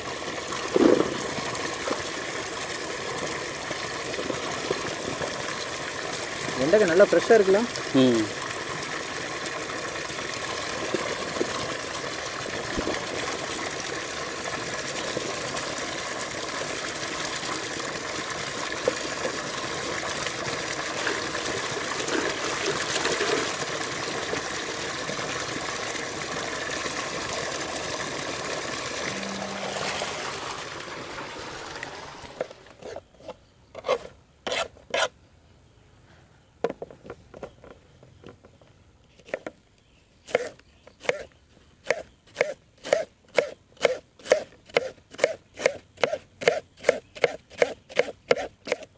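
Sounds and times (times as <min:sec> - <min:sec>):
water gushing into a steel pot: 0:00.0 - 0:32.7.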